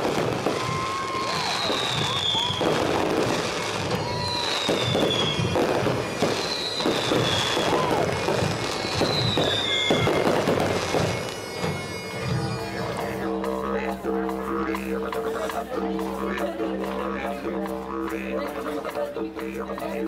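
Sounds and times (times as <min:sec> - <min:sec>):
fireworks bursting and crackling: 0:00.0 - 0:13.0.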